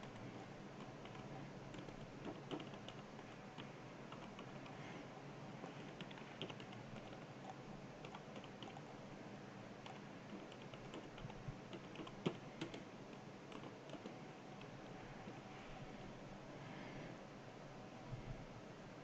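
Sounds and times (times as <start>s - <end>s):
computer keyboard typing: 0.0s - 4.8s, 5.6s - 8.9s, 9.8s - 14.7s.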